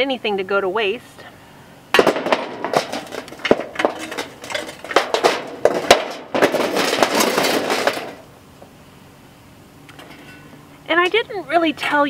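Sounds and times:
shovel scraping and clinking on metal: 10.0s - 10.5s.

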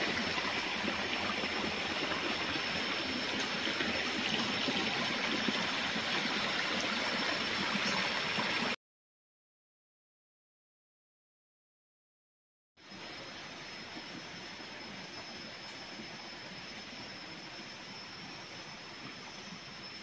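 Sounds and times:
stream running over rocks: 0.0s - 8.8s.

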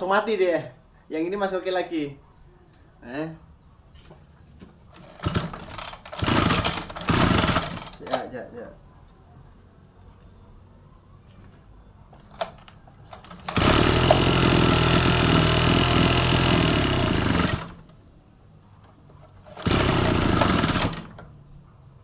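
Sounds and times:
two-stroke brush-cutter engine running: 5.0s - 8.0s, 13.2s - 17.8s, 19.5s - 21.2s.

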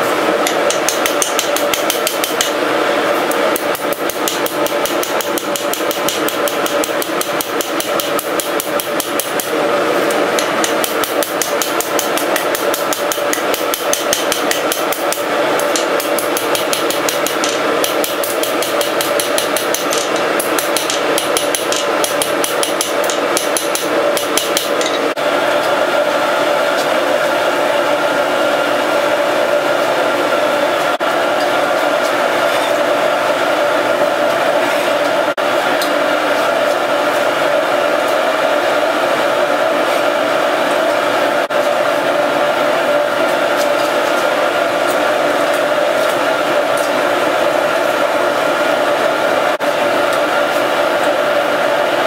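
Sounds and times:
steady hum: 0.0s - 52.0s
hammer striking metal on anvil: 0.5s - 2.6s, 3.6s - 9.5s, 10.4s - 25.2s.

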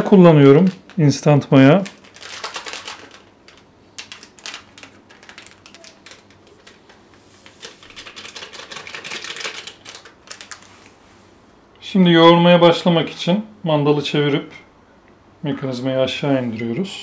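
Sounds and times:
packet crinkling: 0.0s - 10.9s.

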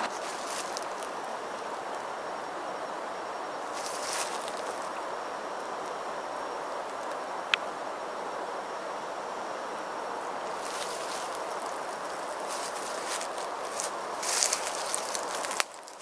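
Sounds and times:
rustle of leaves and branches: 0.0s - 16.0s
woodland background rush: 0.0s - 16.0s.

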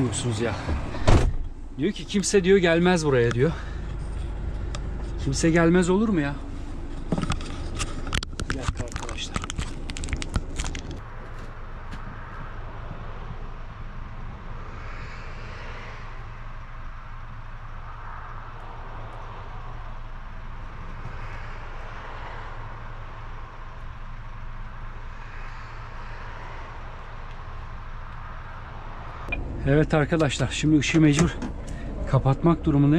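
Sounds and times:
diesel engine idling: 0.0s - 8.2s.

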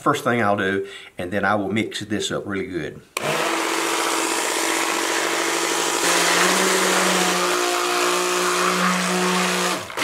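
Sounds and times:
stick blender motor whine: 3.2s - 10.0s.

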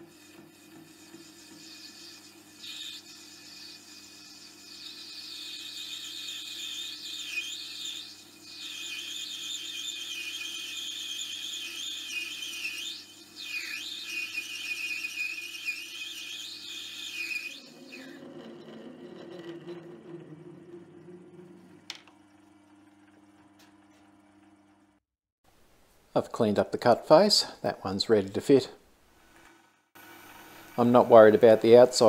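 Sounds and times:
lathe cutting squeal: 0.0s - 21.7s
lathe motor hum: 0.1s - 22.1s.

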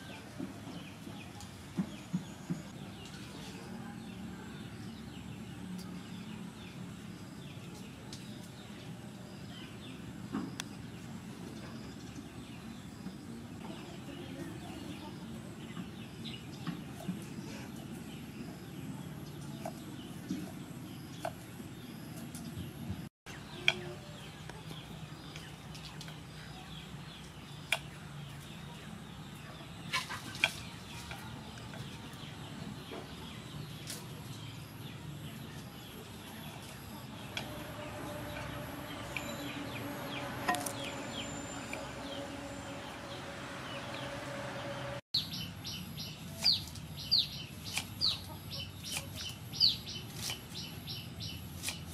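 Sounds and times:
birds chirping: 0.0s - 51.9s
knife cutting vegetables: 50.0s - 50.6s, 51.5s - 51.9s.

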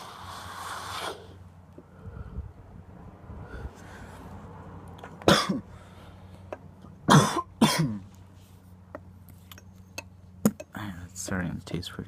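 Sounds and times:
person coughing: 5.3s - 5.6s, 7.1s - 8.0s.

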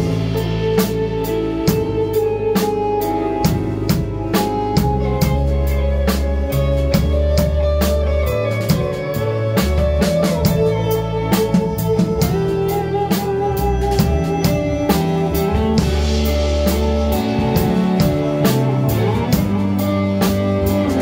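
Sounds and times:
drum kit beat: 0.0s - 21.0s
live band playing: 0.0s - 21.0s.

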